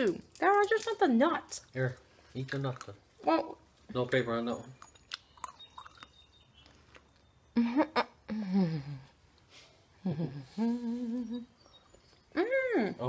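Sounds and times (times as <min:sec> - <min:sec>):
person chewing crunchy nuts: 0:04.7 - 0:07.4.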